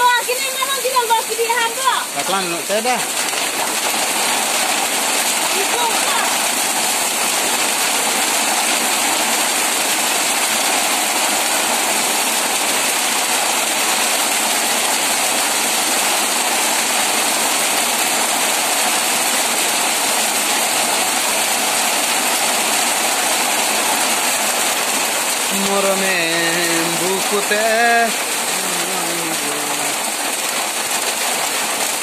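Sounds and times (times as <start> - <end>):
heavy rain splashing into water: 0.0 - 32.0.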